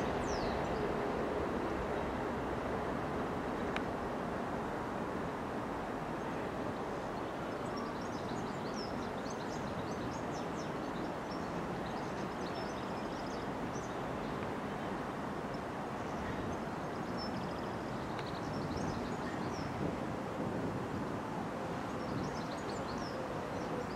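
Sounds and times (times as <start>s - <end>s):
small birds chirping: 16.1s - 19.8s.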